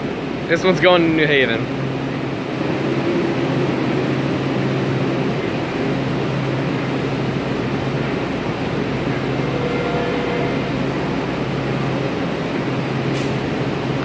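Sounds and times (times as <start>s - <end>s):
constant low hum: 0.0s - 14.0s
electric train approaching: 0.0s - 14.0s.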